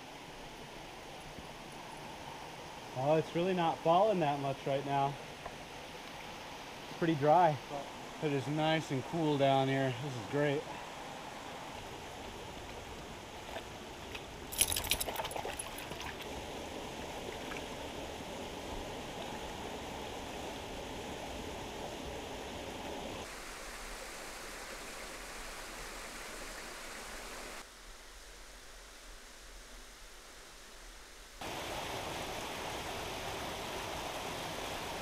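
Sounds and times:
creek water trickling over rocks: 0.1 - 27.7
water splashing: 13.4 - 16.3.

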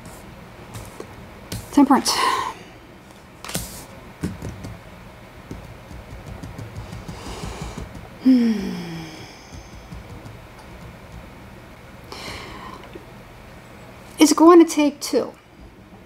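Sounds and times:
card tapping on table: 5.5 - 8.1
woman breathing through nose: 7.1 - 9.9, 12.1 - 12.8
woman humming hmm: 8.2 - 9.8.

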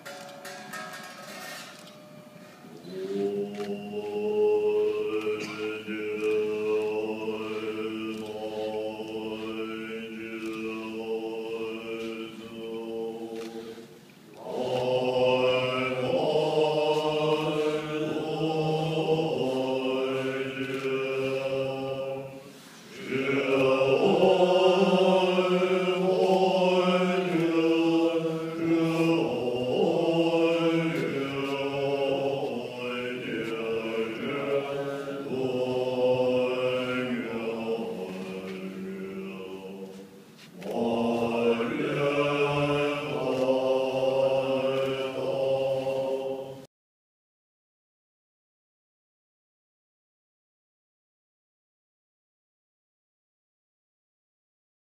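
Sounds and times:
men chanting in low voices: 2.8 - 46.7.

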